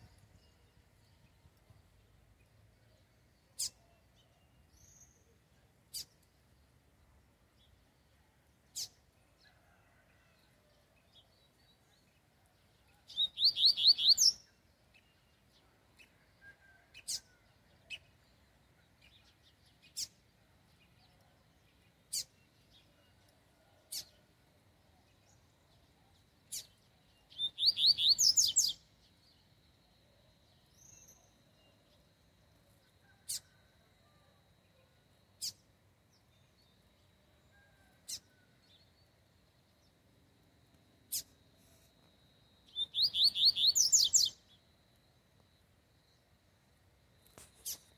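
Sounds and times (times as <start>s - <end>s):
bird singing whistled notes: 13.0s - 14.6s, 26.5s - 28.9s, 42.6s - 44.6s.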